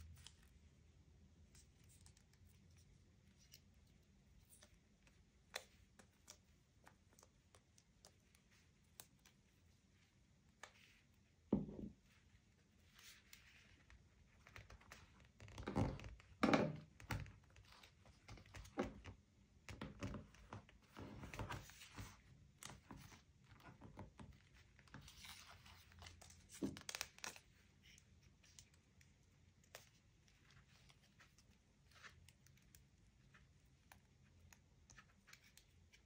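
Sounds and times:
soft taps and thumps: 0:11.5 - 0:12.0.

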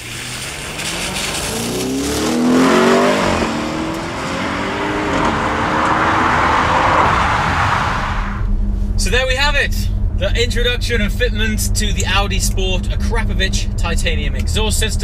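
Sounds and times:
tyres hissing on wet road: 0:00.0 - 0:03.0
car engine accelerating past: 0:00.0 - 0:08.9.

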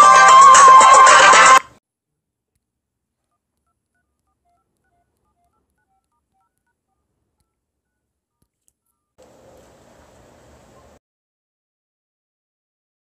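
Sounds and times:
telephone touch-tone beeps: 0:03.3 - 0:08.1.

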